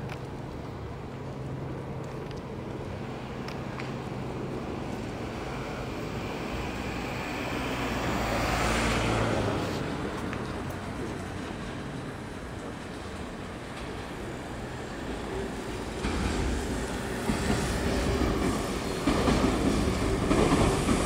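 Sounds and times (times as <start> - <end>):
city traffic hum: 0.0 - 21.0
vehicle passing close: 6.7 - 10.1.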